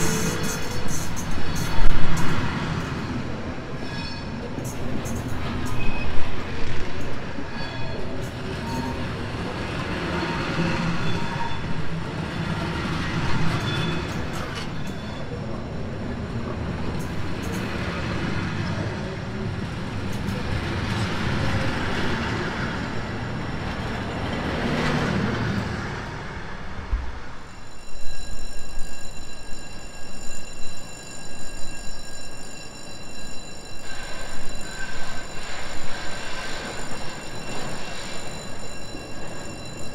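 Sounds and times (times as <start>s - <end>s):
train wheels rumbling on rails: 0.0s - 39.9s
wheel squeals: 13.0s - 15.4s, 27.5s - 39.9s.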